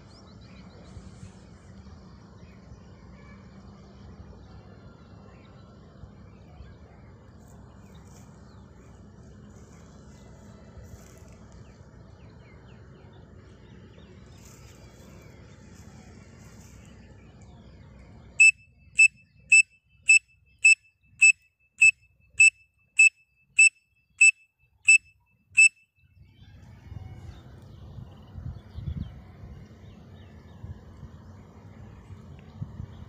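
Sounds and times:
high piercing whistle notes: 19.5 - 24.3.

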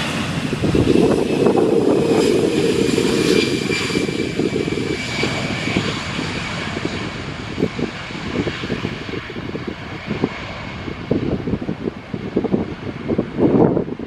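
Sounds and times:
high fan whine: 0.0 - 10.2
jet engine rumble: 0.0 - 14.0.

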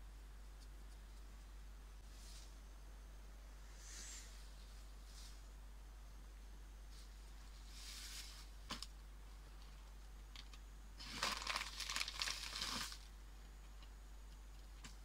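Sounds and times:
soft rustle: 0.8 - 2.7, 3.7 - 5.6, 6.8 - 8.9
plastic packaging crinkling: 10.4 - 13.1.

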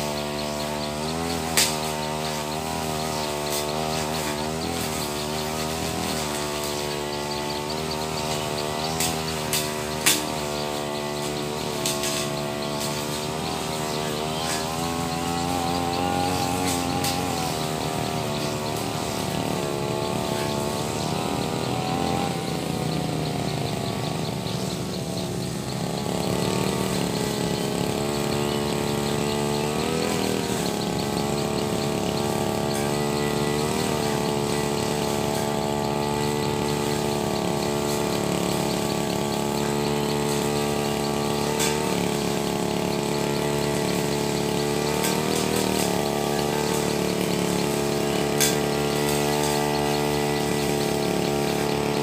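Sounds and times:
brush cutter engine cutting grass: 0.0 - 52.0.

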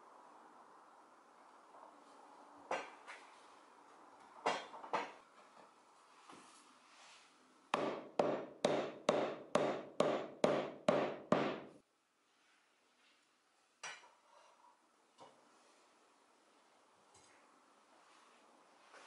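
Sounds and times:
mallet striking wooden beams: 7.7 - 11.7.

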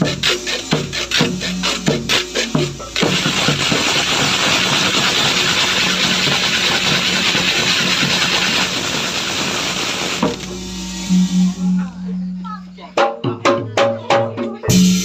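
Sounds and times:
wooden ratchet rattling: 0.0 - 10.4
low gong-like tones: 10.3 - 12.8.

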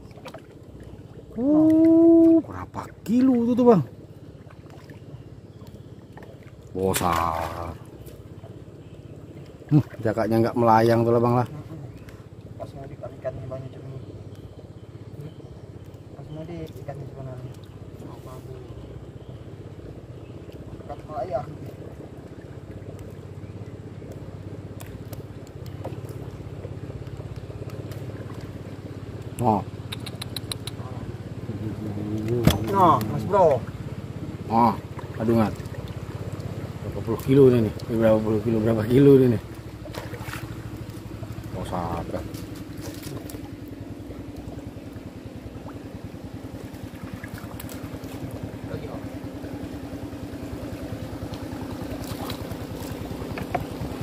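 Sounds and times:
small boat engine running: 0.0 - 54.0
sharp clicks: 29.2 - 30.8.

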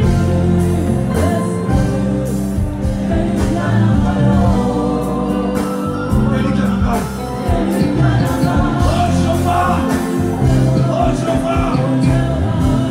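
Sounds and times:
gospel singing with band: 0.0 - 12.9.

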